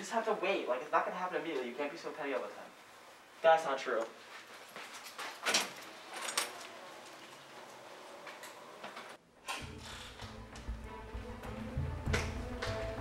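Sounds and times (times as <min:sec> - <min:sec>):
faint background noise: 0:00.0 - 0:12.0
music: 0:09.5 - 0:13.0.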